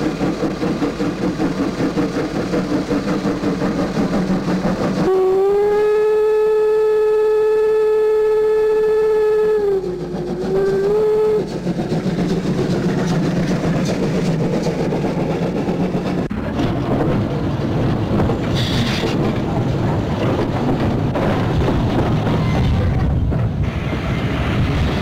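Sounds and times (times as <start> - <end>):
steam train passing: 0.0 - 25.0
steam locomotive whistle: 5.0 - 11.6.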